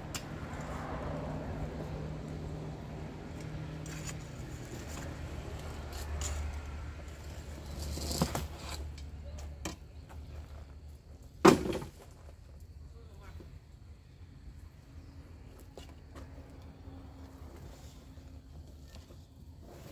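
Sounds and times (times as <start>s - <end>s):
hand tool scraping rubble: 3.7s - 9.0s.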